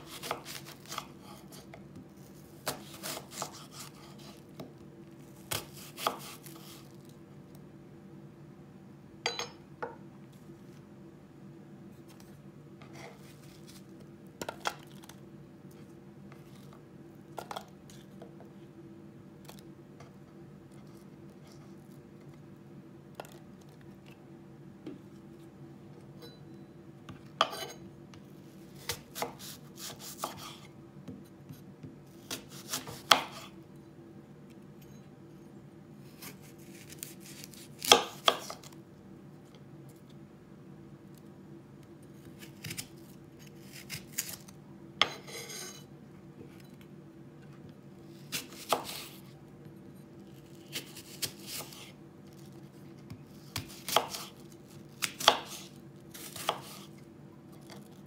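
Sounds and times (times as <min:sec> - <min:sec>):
knife cutting apple on board: 0:00.0 - 0:01.8, 0:02.6 - 0:04.7, 0:05.5 - 0:06.9, 0:27.4 - 0:27.8, 0:28.8 - 0:33.6, 0:36.2 - 0:38.7, 0:42.4 - 0:42.9, 0:43.6 - 0:45.8, 0:48.3 - 0:49.2, 0:50.6 - 0:51.9, 0:53.1 - 0:54.4, 0:55.0 - 0:56.9
faint low hum: 0:00.0 - 0:58.0.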